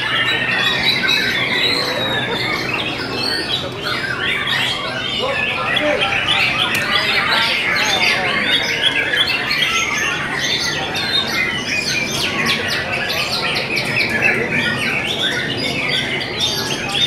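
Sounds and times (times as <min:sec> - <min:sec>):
birds singing: 0:00.0 - 0:17.0.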